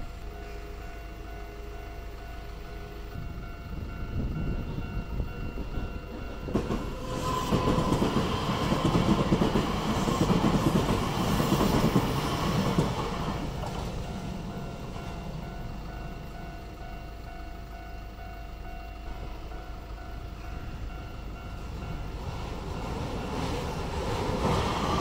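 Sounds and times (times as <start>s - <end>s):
level crossing warning bell: 0.0s - 25.0s
train wheels clattering over rails: 5.5s - 15.9s, 21.3s - 25.0s.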